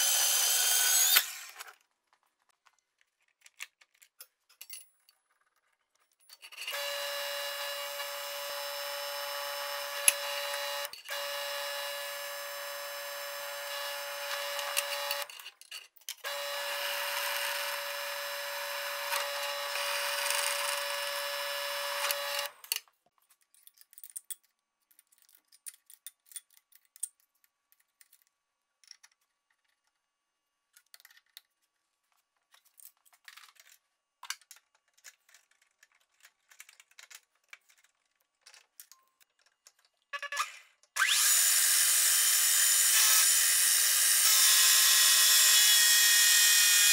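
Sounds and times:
drill press drilling steel: 0:00.0 - 0:01.7, 0:06.7 - 0:15.3, 0:16.3 - 0:22.6, 0:41.0 - 0:46.9.

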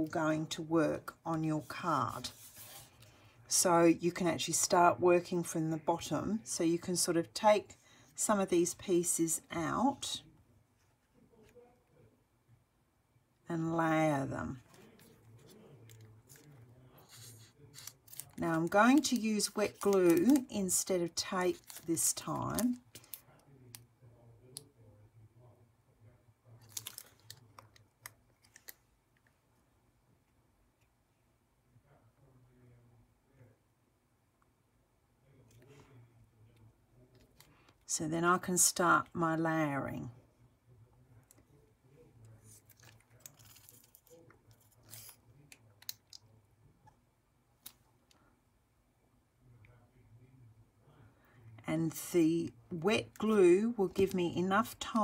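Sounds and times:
crackly paper rustle: 0:14.6 - 0:23.3, 0:26.6 - 0:28.9, 0:42.3 - 0:46.2
paper rustling: 0:14.7 - 0:20.5.

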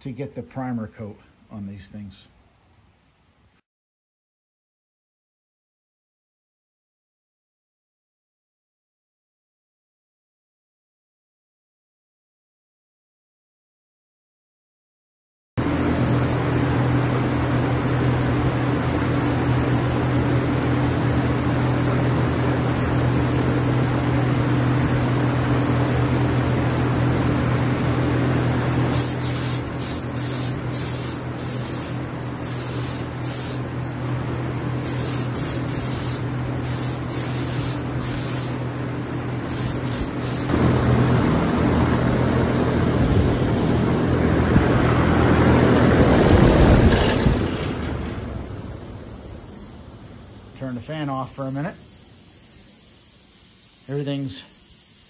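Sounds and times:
paint spray gun hissing: 0:15.6 - 0:42.0, 0:49.4 - 0:55.0
steady mechanical hum: 0:15.6 - 0:54.9.

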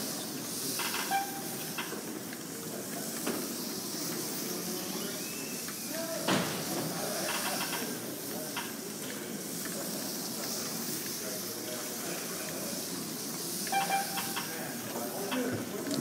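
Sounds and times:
slot cars hissing on track: 0:00.0 - 0:16.0.

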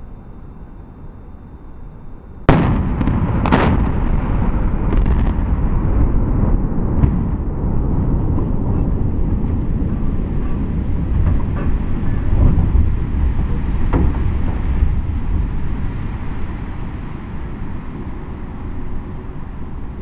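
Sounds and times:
explosive blasts: 0:02.5 - 0:17.4
loud rumble of collapsing bridge: 0:02.5 - 0:19.6.

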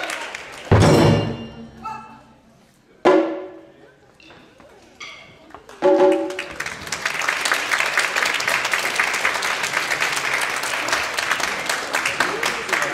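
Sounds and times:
audience clapping: 0:00.0 - 0:00.8, 0:05.5 - 0:12.9.

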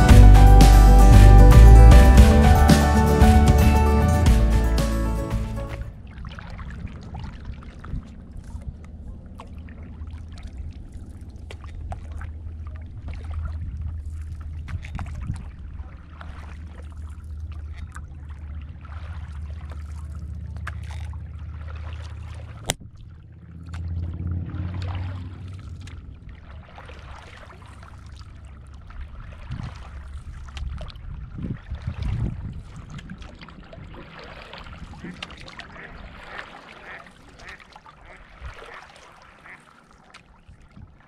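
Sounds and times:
low steady rumble: 0:00.0 - 0:32.8
low water swell: 0:00.0 - 0:41.0
paddle strokes on water: 0:00.0 - 0:41.0
water dripping off paddle: 0:06.2 - 0:31.1, 0:31.8 - 0:41.0.

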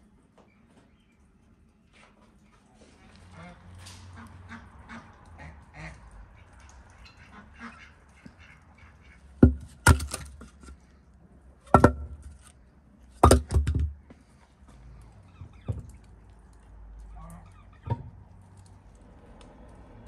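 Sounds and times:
loud sharp knocks: 0:09.4 - 0:10.4, 0:13.2 - 0:14.0.

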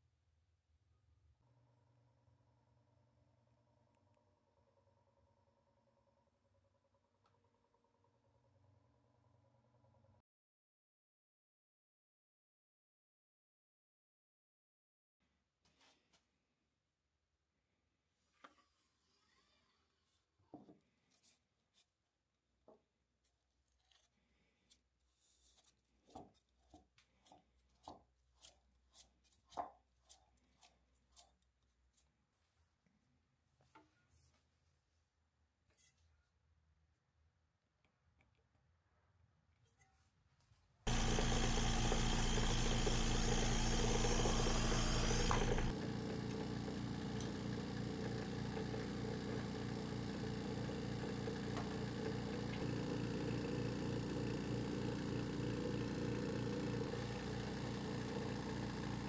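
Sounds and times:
lathe chuck clicking: 0:40.9 - 0:45.7
machine hum: 0:40.9 - 0:48.8.

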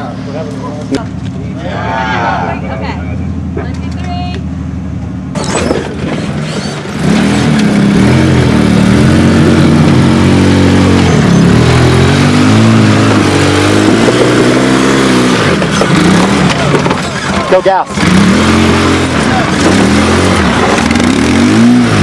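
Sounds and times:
off-road engine revving: 0:05.2 - 0:22.0.

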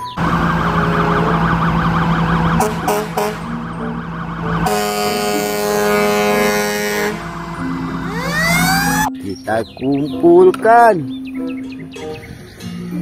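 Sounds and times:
siren yelping: 0:00.0 - 0:09.1
fire engine horn blasts: 0:00.2 - 0:09.1.

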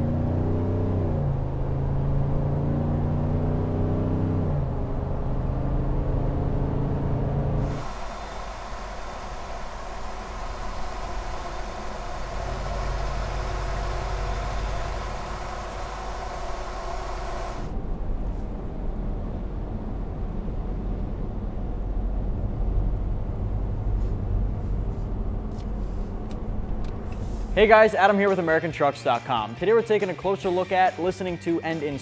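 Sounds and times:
truck engine idling at low revs: 0:07.6 - 0:18.7.

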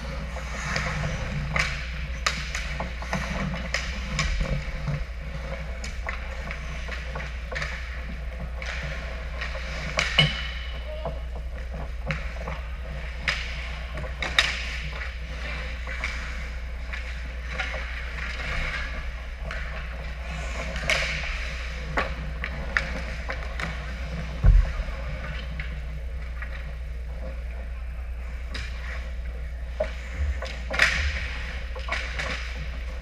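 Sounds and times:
skate blades scraping ice: 0:00.0 - 0:25.8
hockey sticks and pucks clacking: 0:00.0 - 0:27.4, 0:28.2 - 0:33.0
low rink hum: 0:00.0 - 0:33.0
heavy thump: 0:24.4 - 0:24.9.

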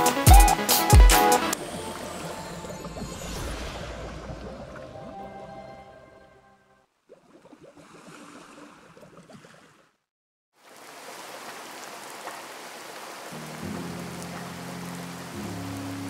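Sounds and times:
water bubbling and gurgling: 0:01.6 - 0:06.4, 0:07.0 - 0:10.0.

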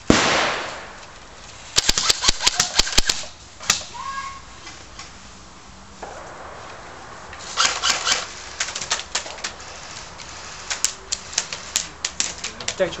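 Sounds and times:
airsoft guns firing: 0:00.0 - 0:01.2, 0:01.8 - 0:03.8, 0:06.0 - 0:09.5.

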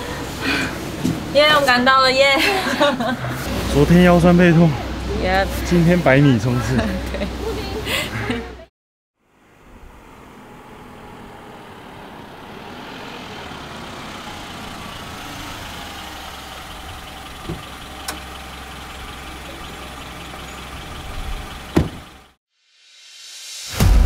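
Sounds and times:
vehicle engine idling: 0:00.0 - 0:22.4.

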